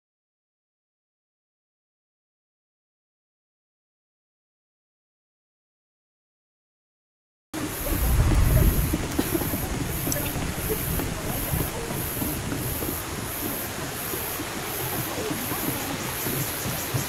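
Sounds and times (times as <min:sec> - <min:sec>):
cicadas buzzing in pulses: 0:07.6 - 0:17.0
steady rushing hiss: 0:07.6 - 0:17.0.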